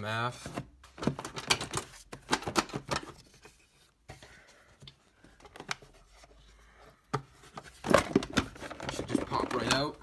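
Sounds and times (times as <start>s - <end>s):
plastic parts clicking and knocking: 0.5s - 3.2s, 7.1s - 10.0s.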